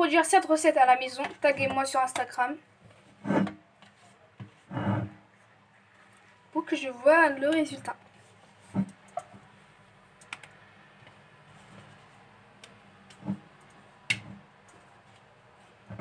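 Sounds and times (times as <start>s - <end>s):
spatula scraping metal bowl: 3.2s - 3.6s, 4.7s - 5.2s.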